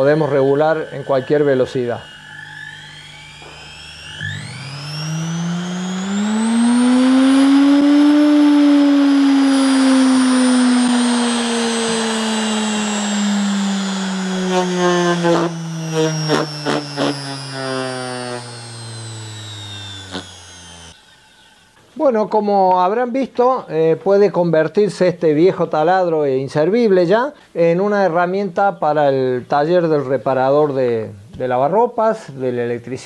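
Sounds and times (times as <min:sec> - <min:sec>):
washing machine motor whining: 0:00.0 - 0:21.0.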